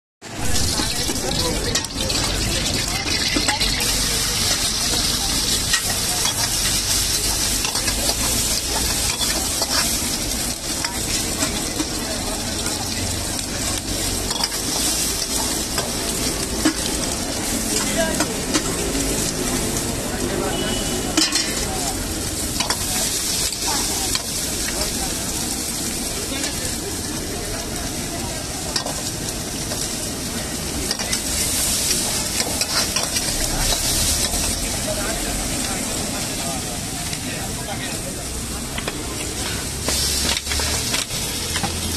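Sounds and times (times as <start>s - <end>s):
hot oil sizzling: 0.2s - 41.9s
metal spatula scraping wok: 0.4s - 13.1s, 13.7s - 19.7s, 20.5s - 25.7s, 28.6s - 34.9s, 38.8s - 41.9s.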